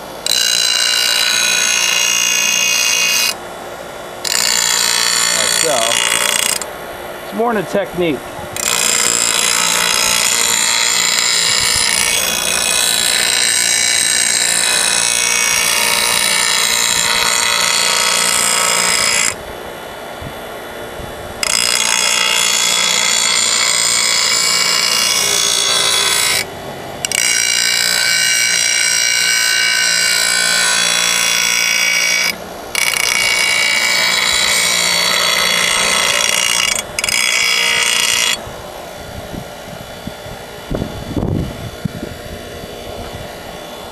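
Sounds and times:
blade grinding on bench grinder: 0.0s - 3.4s, 4.2s - 6.7s, 8.6s - 19.4s, 21.4s - 43.9s
grinder motor hum: 0.0s - 43.9s.

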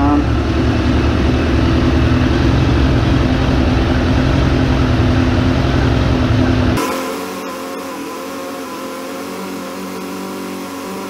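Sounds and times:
motorcycle engine idling: 0.0s - 6.9s.

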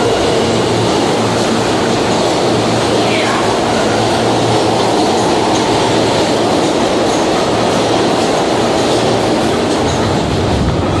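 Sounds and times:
subway train wheels rumbling on rails: 0.0s - 11.0s.

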